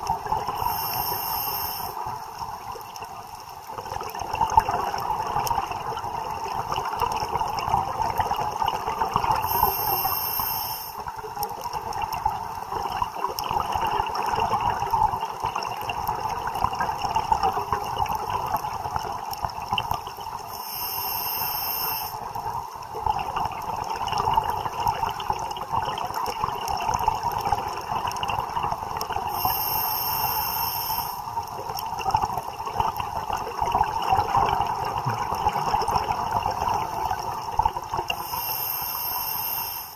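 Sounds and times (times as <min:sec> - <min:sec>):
underwater watery hiss: 0:00.3 - 0:02.5, 0:09.2 - 0:12.1, 0:20.4 - 0:22.4, 0:29.0 - 0:31.6, 0:35.8 - 0:39.9
breath through scuba regulator: 0:00.5 - 0:02.1, 0:09.3 - 0:11.1, 0:20.5 - 0:22.3, 0:29.3 - 0:31.3, 0:38.1 - 0:39.9.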